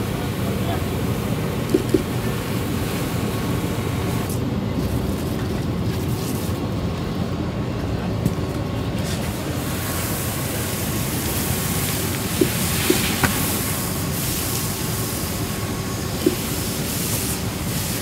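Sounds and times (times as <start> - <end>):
fire engine pump running: 0.0 - 18.0
hose spraying water: 9.0 - 18.0.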